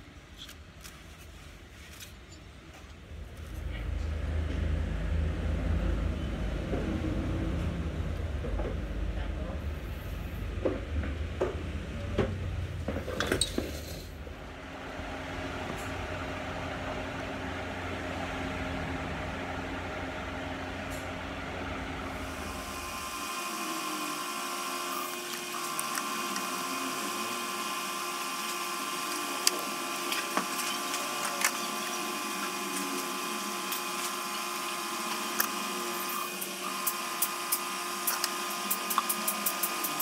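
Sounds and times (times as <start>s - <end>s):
machine whine: 13.2s - 40.0s.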